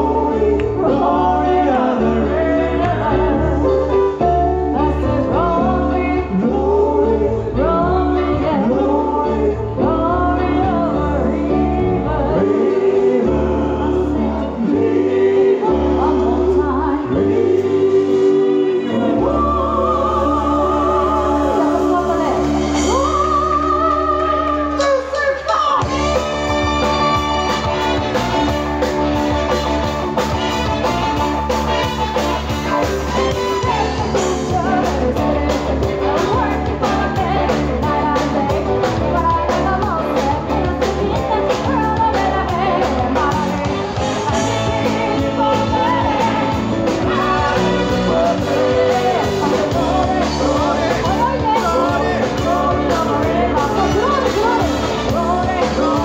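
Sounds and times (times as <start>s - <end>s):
woman singing: 0.0s - 28.0s, 32.2s - 56.0s
drums: 0.0s - 56.0s
electric guitar: 0.0s - 56.0s
horn section playing: 25.8s - 34.8s.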